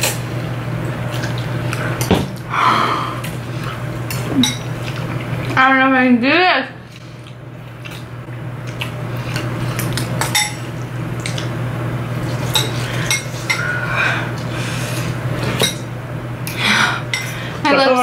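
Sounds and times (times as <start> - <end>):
steady low hum: 0.0 - 18.0
utensils clinking on ceramic bowls: 4.1 - 4.7, 10.2 - 10.6.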